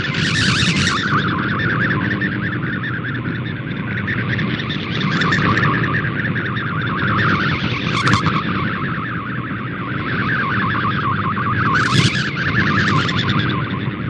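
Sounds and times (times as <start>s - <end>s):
radio hiss and static: 0.0s - 1.4s, 7.1s - 8.6s, 11.7s - 13.4s
warbling digital radio tones: 0.0s - 3.0s, 4.0s - 9.4s, 10.0s - 13.8s.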